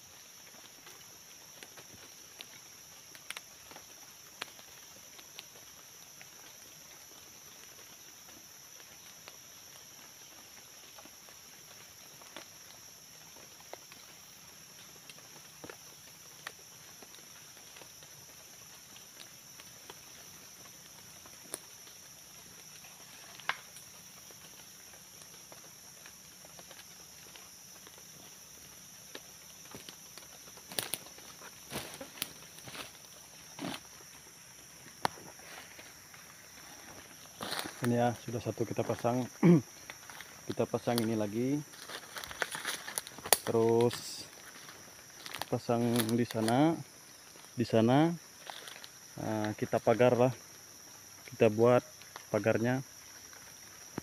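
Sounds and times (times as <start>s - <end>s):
faint crackles: 0.0s - 50.4s
forest insects buzzing: 0.0s - 54.0s
sticks snapping in dry leaves: 23.3s - 23.9s, 29.7s - 33.0s, 41.8s - 46.6s.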